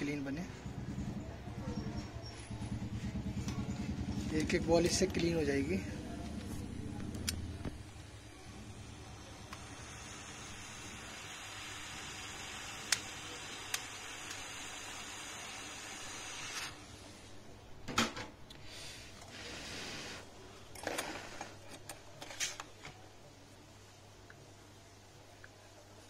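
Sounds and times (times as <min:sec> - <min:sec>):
hot-air gun hissing: 0:07.8 - 0:16.9.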